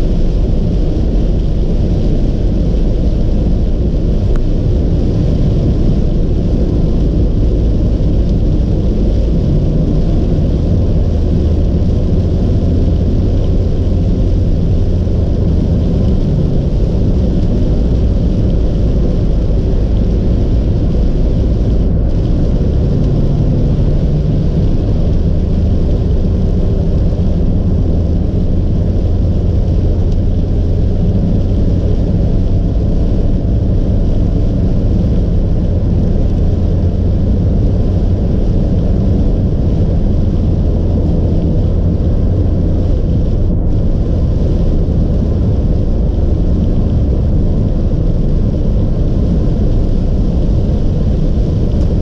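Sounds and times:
road and engine rumble inside car: 0.0 - 52.0
tyres hissing on wet road: 0.0 - 52.0.

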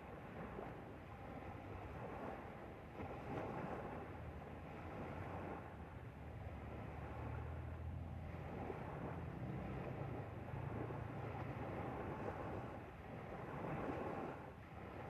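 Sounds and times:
water rushing past hull: 0.0 - 15.0
motorboat engine humming: 3.9 - 15.0.

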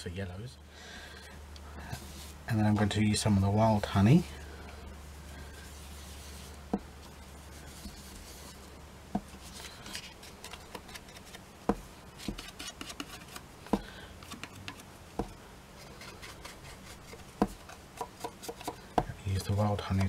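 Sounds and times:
foam tool rubbing on card: 5.6 - 8.7.

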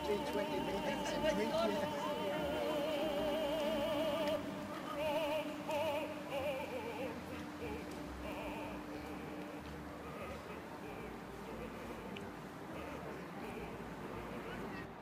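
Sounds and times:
high voice singing operatically: 0.0 - 9.4.

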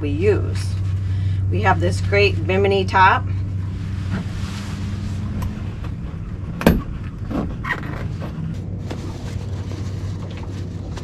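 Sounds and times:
steady low hum: 0.0 - 11.0
fabric curtain rustling: 3.7 - 5.8, 8.8 - 11.0.

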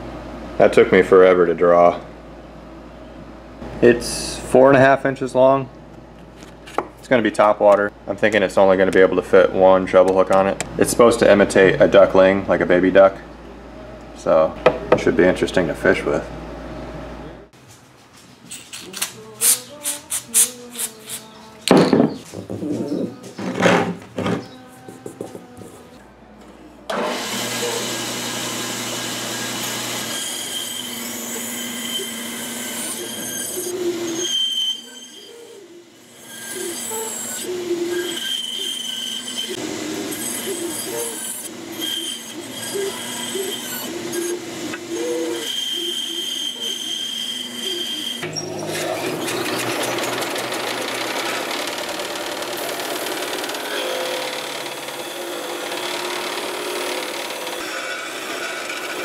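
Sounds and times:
bandsaw cutting wood: 26.9 - 34.5, 36.1 - 59.0
disc sander grinding wood: 26.9 - 59.0.

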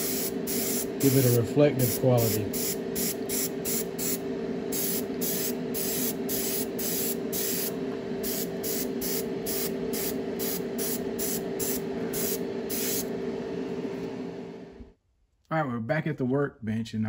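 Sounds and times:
airbrush hissing bursts: 0.0 - 13.1
low hum: 0.0 - 15.0.

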